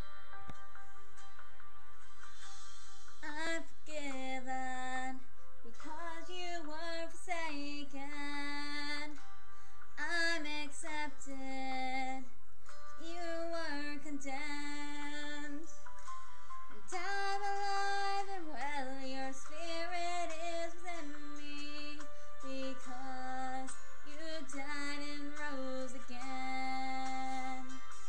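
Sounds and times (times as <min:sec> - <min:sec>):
woman singing with vibrato: 0:03.2 - 0:09.2, 0:10.0 - 0:12.3, 0:16.9 - 0:27.8.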